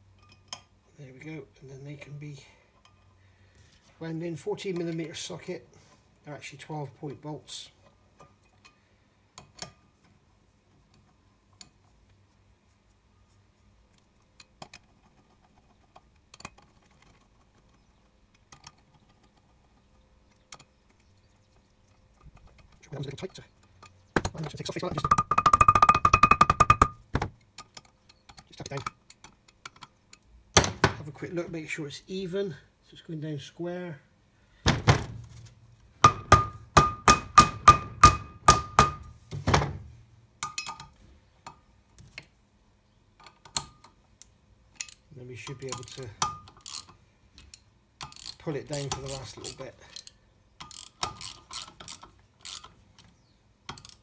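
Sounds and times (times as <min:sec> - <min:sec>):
small metallic clicks: 0:13.9 - 0:30.3, 0:40.4 - 0:42.3, 0:43.2 - 0:54.0
hammer striking metal disc: 0:25.0 - 0:27.0, 0:36.0 - 0:39.1.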